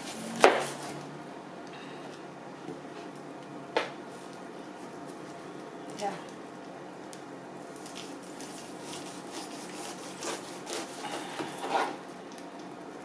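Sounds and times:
knife sawing through pineapple rind: 0:08.4 - 0:12.0.

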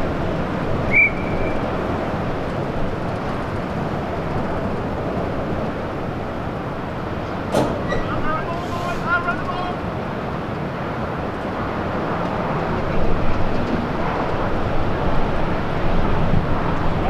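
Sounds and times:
wind buffeting microphone: 0:00.0 - 0:17.0
high whistle blast: 0:00.9 - 0:01.6.

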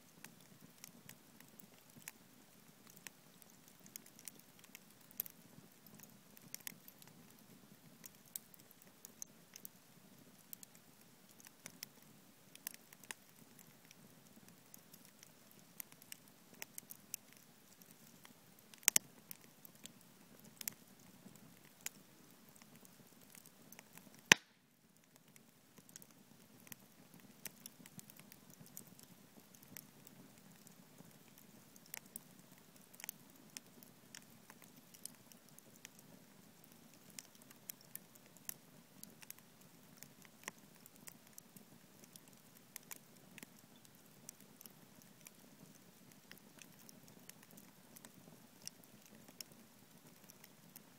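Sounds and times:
wood fire crackling and popping: 0:00.0 - 0:50.9.

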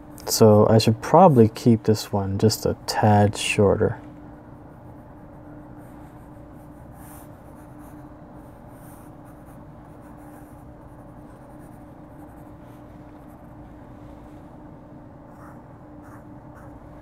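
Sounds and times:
faint hum: 0:00.0 - 0:17.0
pencil scratching on paper: 0:04.8 - 0:13.5, 0:15.3 - 0:16.8.

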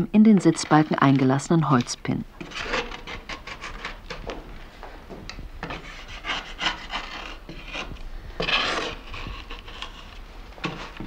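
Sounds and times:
knife scraping wood: 0:02.4 - 0:04.2, 0:05.6 - 0:11.0.

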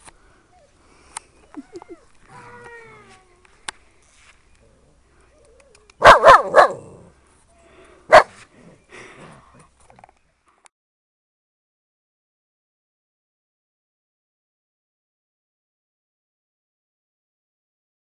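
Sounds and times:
puppy barking: 0:06.0 - 0:07.0, 0:08.1 - 0:08.4.

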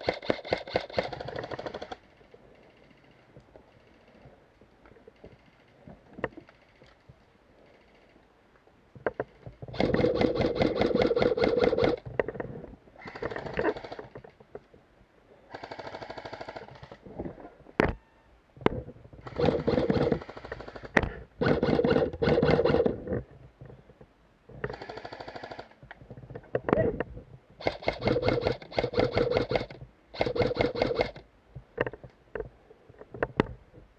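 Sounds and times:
airsoft gun bursts rattling: 0:00.0 - 0:04.3, 0:09.6 - 0:12.1, 0:13.0 - 0:14.3, 0:15.5 - 0:17.0, 0:19.2 - 0:23.1, 0:24.6 - 0:25.8, 0:27.6 - 0:31.3.

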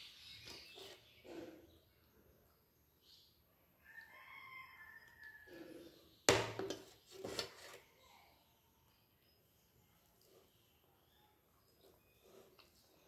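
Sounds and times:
rooster crowing faintly: 0:03.8 - 0:06.0.

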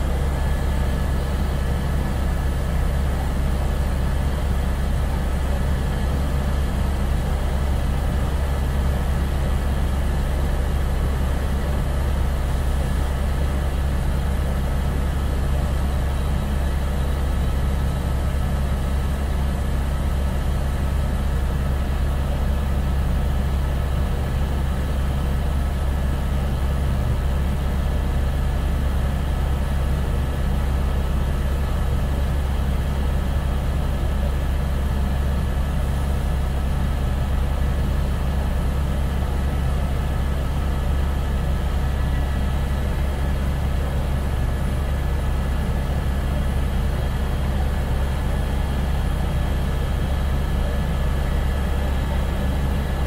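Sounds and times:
aircraft engine drone in cabin: 0:00.0 - 0:53.0.

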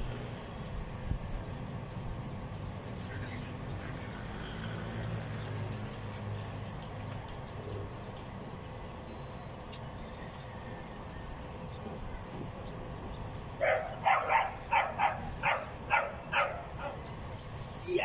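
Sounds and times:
dog barking: 0:13.6 - 0:17.0.

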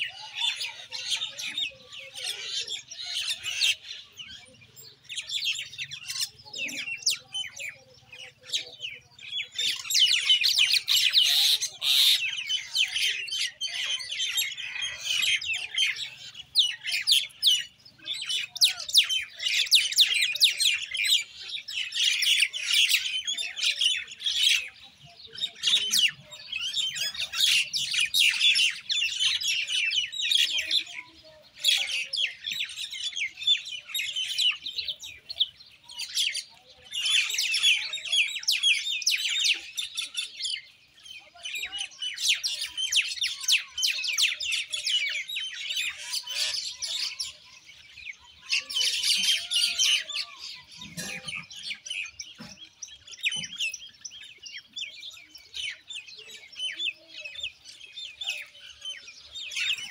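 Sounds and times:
mynas chattering: 0:00.0 - 0:21.2.

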